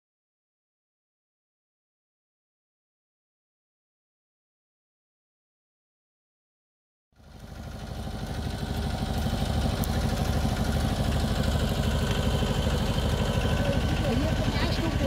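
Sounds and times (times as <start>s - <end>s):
tractor engine running: 7.2s - 15.0s.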